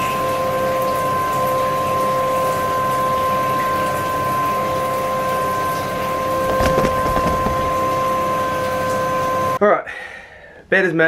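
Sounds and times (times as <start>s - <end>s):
steady hum: 5.4s - 9.6s
knocks: 6.5s - 7.9s.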